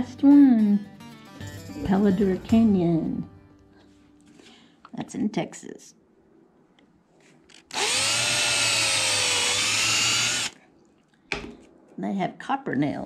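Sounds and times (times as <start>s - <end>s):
electric drill whining: 7.5s - 10.6s.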